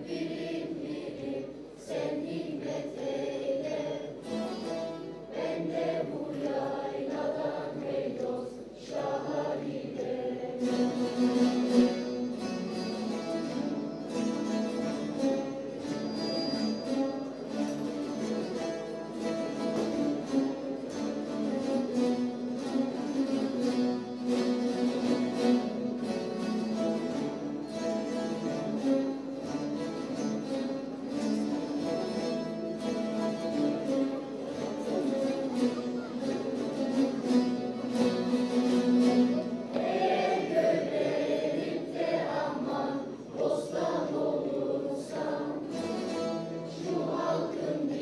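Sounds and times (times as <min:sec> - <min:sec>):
children's choir singing: 0:00.0 - 0:48.0
lutes strummed and plucked: 0:03.7 - 0:07.5, 0:10.1 - 0:40.9, 0:45.4 - 0:48.0.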